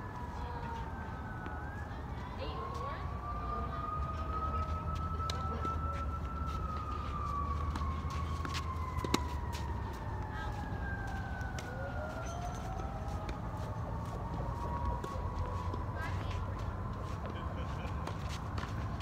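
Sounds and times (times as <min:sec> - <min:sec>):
siren wailing: 0:00.0 - 0:19.0
tennis balls struck: 0:08.4 - 0:09.4.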